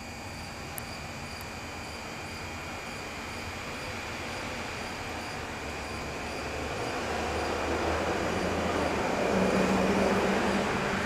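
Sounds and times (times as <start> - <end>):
electric train rumble: 0.0 - 11.0.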